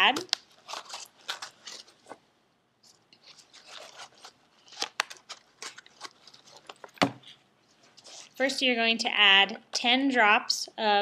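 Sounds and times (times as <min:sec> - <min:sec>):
cardboard and paper rustling: 0:00.1 - 0:02.2, 0:02.8 - 0:08.4.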